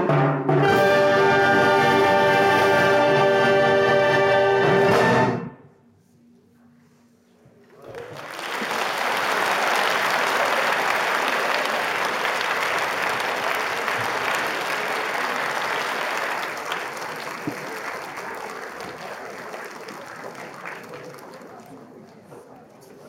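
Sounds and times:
audience clapping: 7.8 - 22.6.

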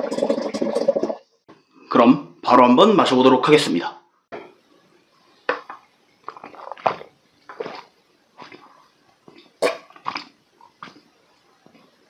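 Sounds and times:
person gulping water: 0.0 - 1.2, 6.2 - 11.1.

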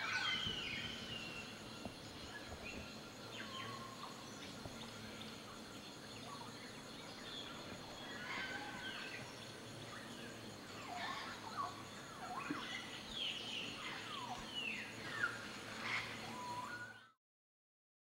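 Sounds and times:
birds chirping and whistling: 0.0 - 4.5, 10.8 - 17.2
faint background hiss: 0.0 - 17.1.

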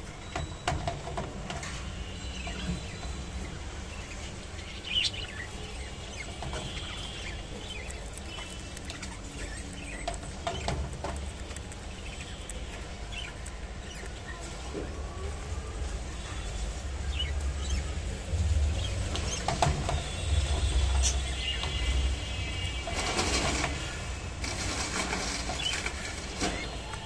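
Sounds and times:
faint bird chirps: 1.6 - 10.8, 11.6 - 18.0
bird beak nibbling leaves: 2.4 - 27.0.

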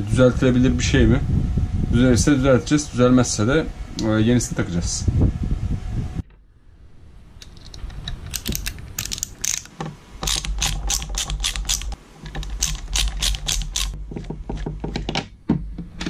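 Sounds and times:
ratcheting screwdriver clicking: 7.4 - 14.0.

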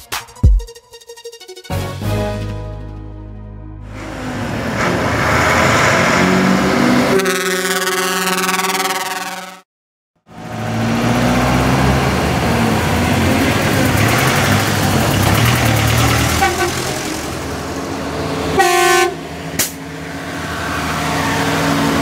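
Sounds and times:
lorries driving past: 3.8 - 9.6, 10.3 - 22.0
truck horn: 3.8 - 9.7, 15.3 - 17.4, 18.5 - 19.8, 20.4 - 22.0.

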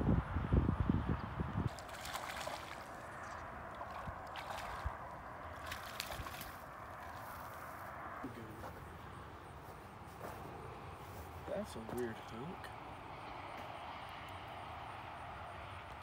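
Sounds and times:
fish splashing in water: 1.7 - 7.7.

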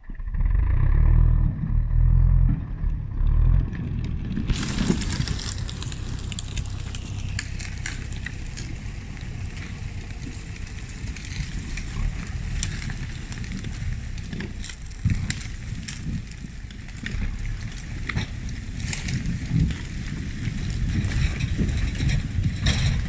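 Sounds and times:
steady low rumble: 0.0 - 23.0
twigs snapping: 4.4 - 21.3
footsteps crunching through branches: 4.5 - 10.9.

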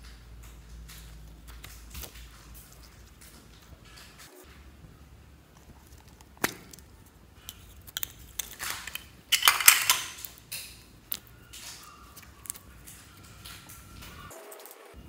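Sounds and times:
slime crackling and popping: 5.5 - 14.1.

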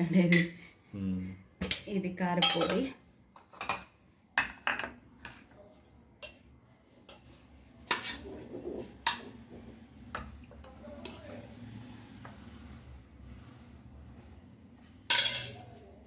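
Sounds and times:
metal tins and lids clinking: 1.6 - 5.4, 15.1 - 15.8.

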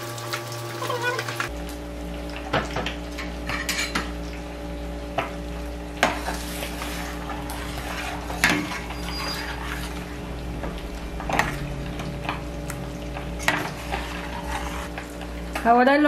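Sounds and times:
low hum: 1.5 - 15.6
metal spoon scraping a pan: 6.0 - 10.2, 13.2 - 15.6.

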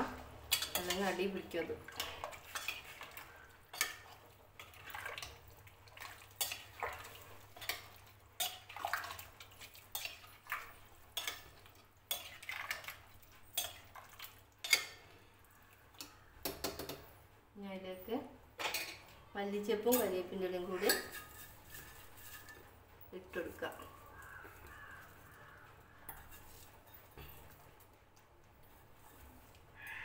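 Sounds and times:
metal spoon scraping a pot: 0.5 - 5.4, 6.3 - 10.4, 19.9 - 22.6, 26.0 - 27.6.

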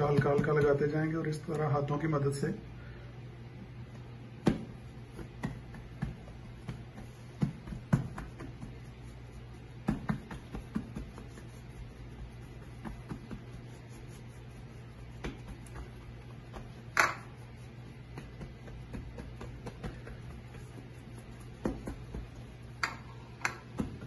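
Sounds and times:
hands slapping dough on counter: 0.0 - 1.7, 3.9 - 24.0
low steady hum: 0.0 - 24.0.

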